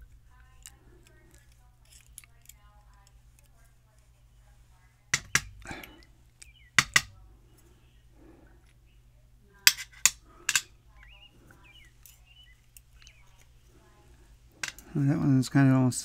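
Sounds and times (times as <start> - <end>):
small metal clicks and clinks: 0.4 - 3.7, 11.9 - 13.5.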